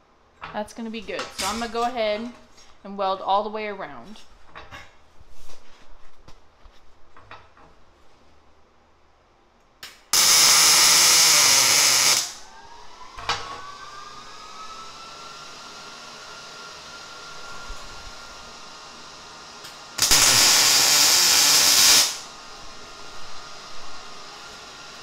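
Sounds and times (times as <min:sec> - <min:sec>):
loud steady hiss: 0:10.1 - 0:12.4, 0:19.9 - 0:24.2
faint rising whine: 0:12.3 - 0:19.0.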